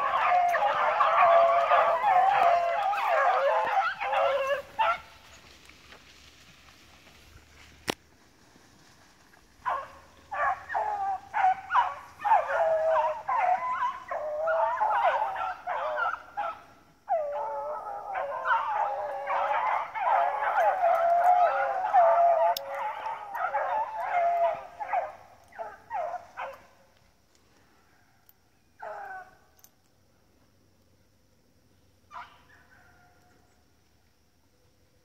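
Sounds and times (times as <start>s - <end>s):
pack of dogs baying: 0.0s - 5.2s, 9.6s - 26.7s, 28.8s - 29.7s.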